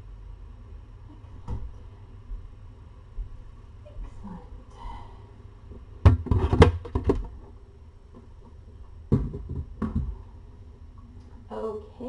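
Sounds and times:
sharp knocks: 9.1s - 10.2s.

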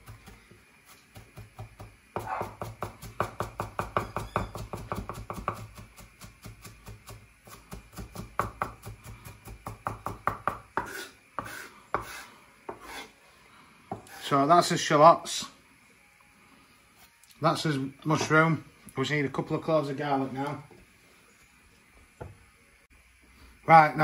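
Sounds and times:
knife chopping on wooden board: 1.1s - 13.0s.

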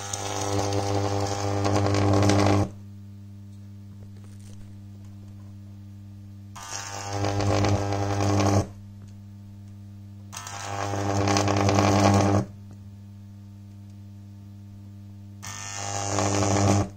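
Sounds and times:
electric arc crackling: 0.0s - 2.8s, 6.5s - 8.8s, 10.3s - 12.6s, 15.4s - 16.9s
transformer mains hum: 0.0s - 16.9s.

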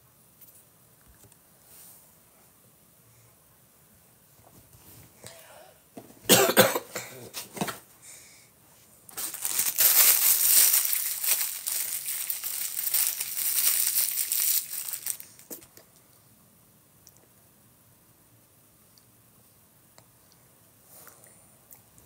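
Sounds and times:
close crinkling and rustling: 9.1s - 15.7s.

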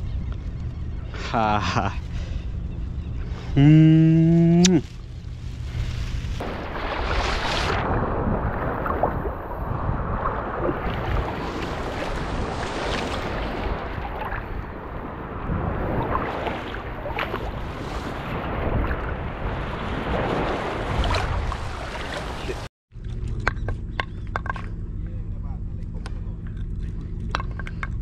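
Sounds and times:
wind rumble on microphone: 1.9s - 28.0s
water sloshing and splashing: 4.8s - 23.4s.

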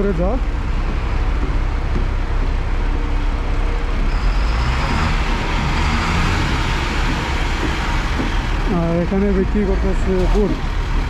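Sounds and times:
buses and cars idling in traffic: 0.0s - 11.0s.

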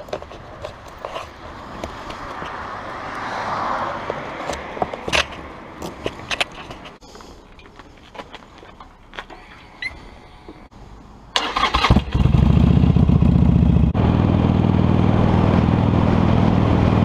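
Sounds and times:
passing vehicle rushing: 2.4s - 4.8s.

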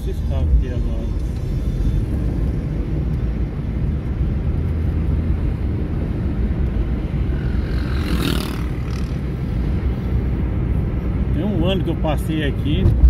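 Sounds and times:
car engine and tyre rumble: 0.0s - 13.0s
motorcycle passing whoosh: 6.4s - 10.4s.

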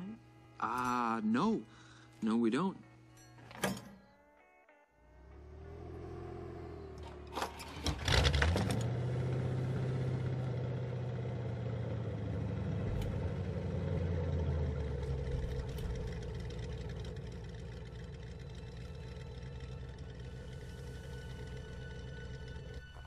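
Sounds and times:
car engine starting: 5.1s - 23.0s.

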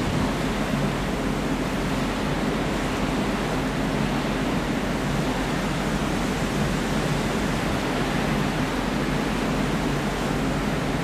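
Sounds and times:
sea rushing: 0.0s - 11.0s
wind: 0.0s - 11.0s.

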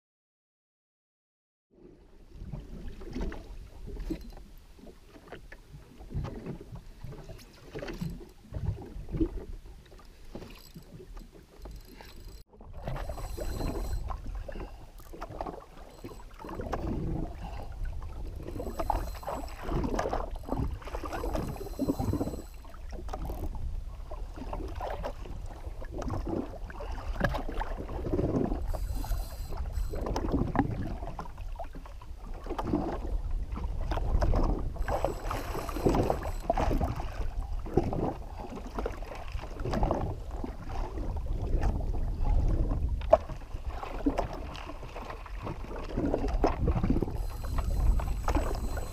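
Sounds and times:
water sloshing against hull: 1.8s - 48.9s
wind buffeting microphone: 45.4s - 48.9s.

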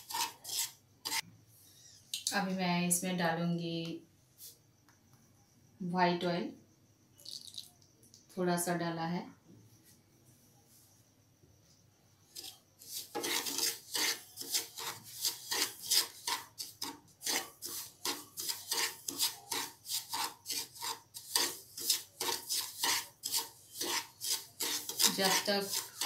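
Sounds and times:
wooden spatula scraping a pan: 0.0s - 1.2s, 12.3s - 26.0s.

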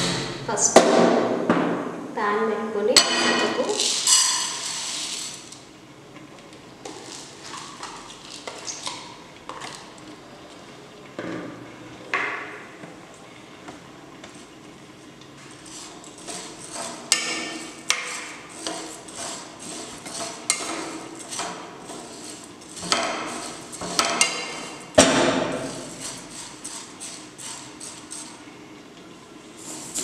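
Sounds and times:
lentils rattling and scraping in pot: 3.6s - 5.6s, 15.5s - 24.9s, 25.6s - 28.4s, 29.6s - 30.0s.

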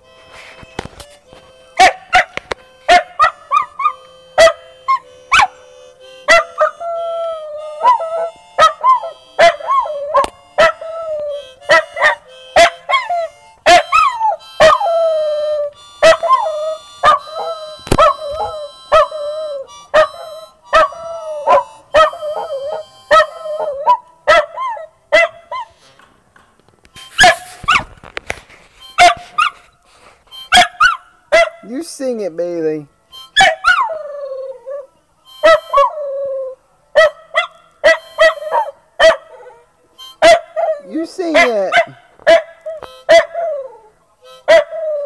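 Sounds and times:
harmonica: 0.0s - 26.2s, 26.8s - 36.9s, 37.7s - 45.0s
dog barking: 1.8s - 5.6s, 6.3s - 6.7s, 7.8s - 10.8s, 11.7s - 14.8s, 16.0s - 19.1s, 20.8s - 25.7s, 27.2s - 27.8s, 29.0s - 29.6s, 30.5s - 31.6s, 33.4s - 33.9s, 35.4s - 35.9s, 37.0s - 43.7s, 44.5s - 44.8s
dog howling: 6.3s - 24.9s, 33.4s - 45.0s.

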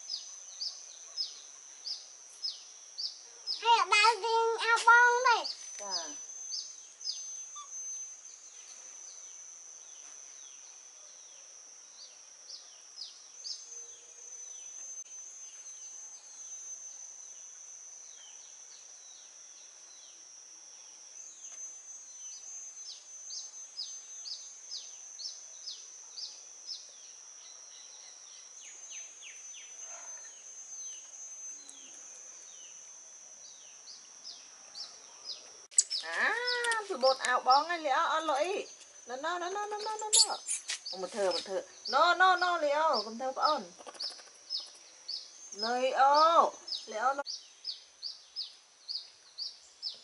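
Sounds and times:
high-pitched insect drone: 0.0s - 50.0s
small birds chirping: 0.0s - 50.0s.

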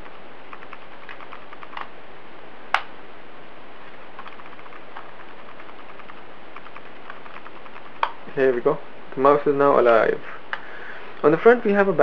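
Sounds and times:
steady hiss: 0.0s - 12.0s
sharp plastic snap: 2.7s - 2.9s.

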